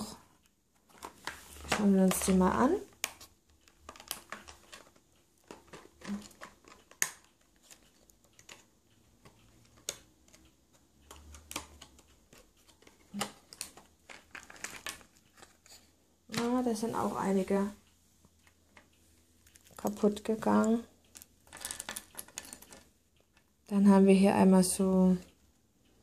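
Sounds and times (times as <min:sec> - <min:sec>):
packaging rustling: 0:12.4 - 0:15.8.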